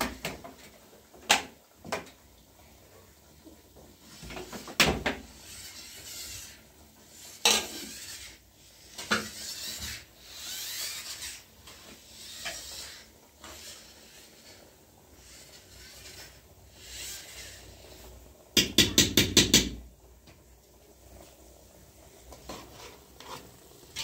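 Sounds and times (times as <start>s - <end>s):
rubbing and scraping: 4.0s - 18.2s, 22.3s - 24.0s.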